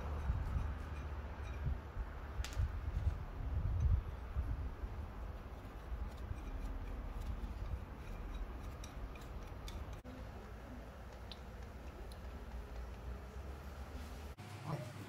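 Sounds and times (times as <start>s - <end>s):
low steady rumble: 0.0s - 14.4s
metal nut clicking on thread: 6.0s - 10.0s.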